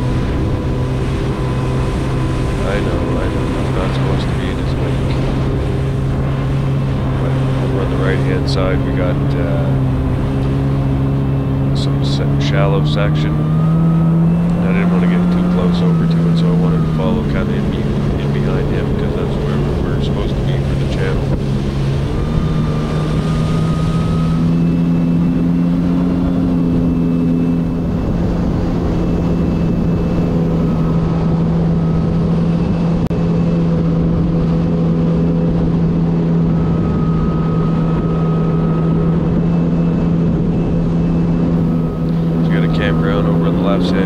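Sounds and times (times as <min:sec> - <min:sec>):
jet ski engine drone: 0:00.0 - 0:44.0
rush of noise: 0:00.0 - 0:44.0.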